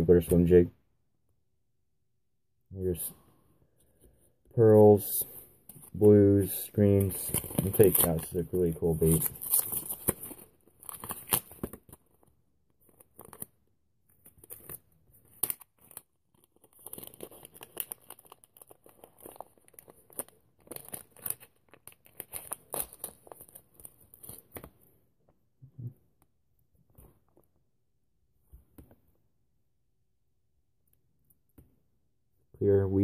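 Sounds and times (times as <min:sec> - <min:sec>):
plastic packaging crinkling: 0:14.2 - 0:24.6.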